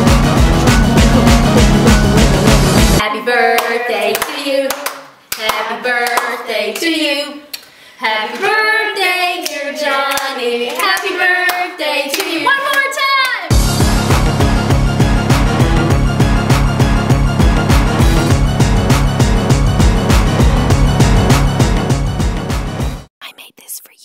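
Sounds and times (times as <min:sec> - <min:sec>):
backing music: 0:00.0 - 0:03.0, 0:13.5 - 0:23.1
voices singing unaccompanied: 0:00.5 - 0:13.1
hand claps: 0:03.6 - 0:06.9, 0:09.4 - 0:13.4.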